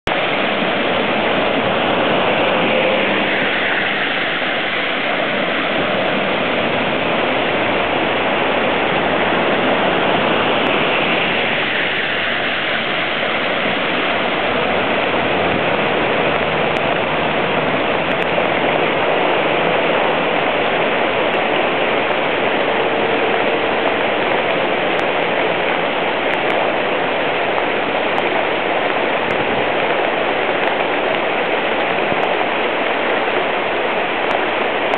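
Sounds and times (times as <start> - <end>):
floodwater rushing: 0.0 - 34.9
vehicles splashing through water: 0.0 - 34.9.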